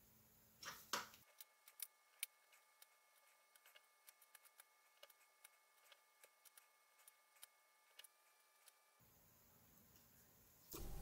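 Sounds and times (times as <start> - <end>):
small wire pieces clicking: 1.2 - 8.8.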